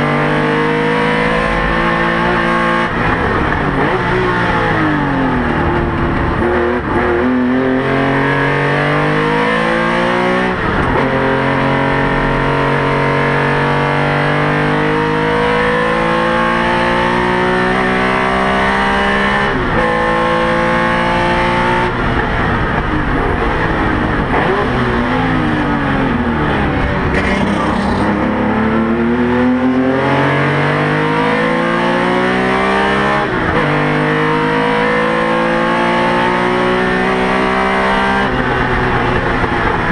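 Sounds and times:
race car engine revving through gears: 0.0s - 39.9s.

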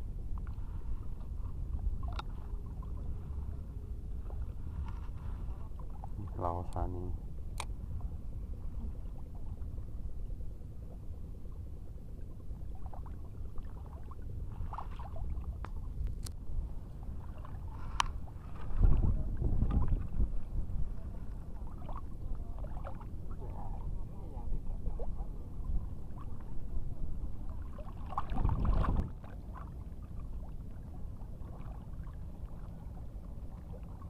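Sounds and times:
wind and sea water rumble: 0.0s - 34.0s
faint sharp clicks of fishing tackle: 2.0s - 2.4s, 7.5s - 7.8s, 15.6s - 16.4s, 17.9s - 18.2s.

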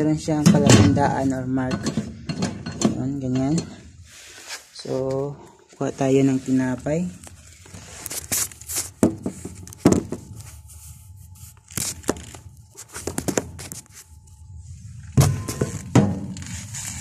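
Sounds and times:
rustling and crinkling handling: 4.0s - 17.0s.

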